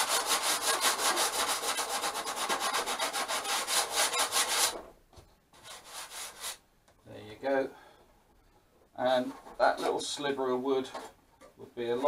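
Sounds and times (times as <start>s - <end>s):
sandpaper rubbing on wood: 0.0s - 4.8s, 5.6s - 6.6s.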